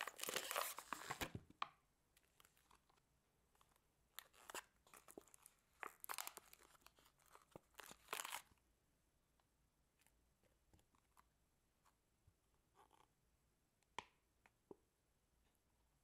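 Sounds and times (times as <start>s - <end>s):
slime crackling and squishing: 4.2s - 8.5s.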